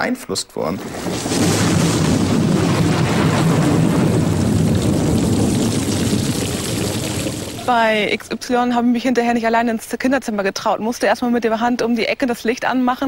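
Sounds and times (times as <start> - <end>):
water rushing and splashing: 0.8 - 8.1.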